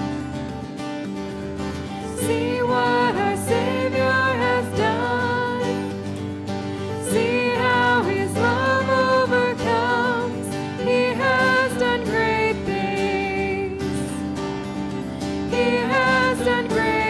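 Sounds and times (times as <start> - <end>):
acoustic guitar: 0.0 - 17.0
keyboard: 0.0 - 17.0
voices singing: 2.2 - 5.9, 7.0 - 14.1, 15.5 - 17.0.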